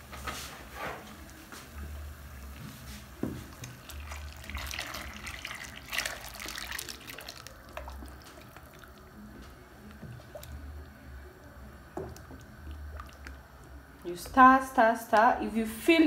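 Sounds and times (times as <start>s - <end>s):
liquid splashing and bubbling: 3.0s - 11.2s, 11.9s - 13.9s.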